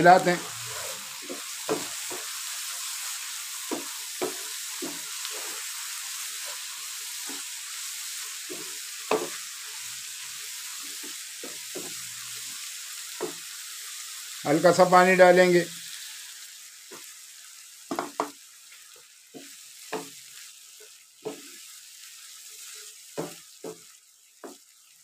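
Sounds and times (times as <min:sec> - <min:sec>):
masala sizzling in a frying pan: 0:00.0 - 0:25.0
spatula scraping and knocking pan: 0:00.5 - 0:03.0, 0:03.6 - 0:07.6, 0:08.2 - 0:09.4, 0:10.7 - 0:12.1, 0:17.9 - 0:18.4, 0:19.4 - 0:20.2, 0:20.8 - 0:21.6, 0:23.1 - 0:24.6.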